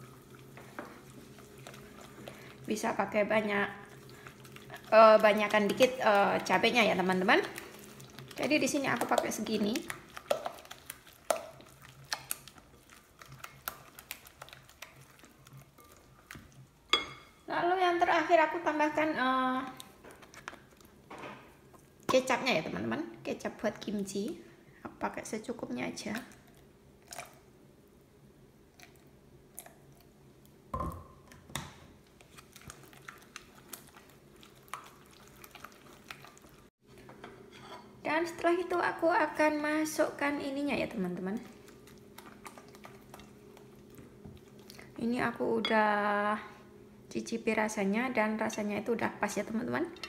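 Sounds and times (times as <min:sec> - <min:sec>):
spatula squishing wet paste: 0:00.0 - 0:17.2, 0:32.1 - 0:36.7, 0:41.0 - 0:44.9.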